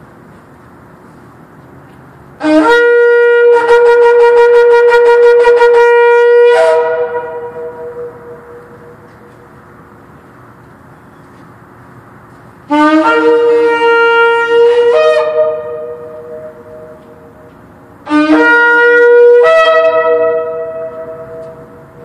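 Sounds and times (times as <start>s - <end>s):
shofar blast: 2.4s - 9.4s, 12.7s - 17.4s, 18.0s - 22.0s.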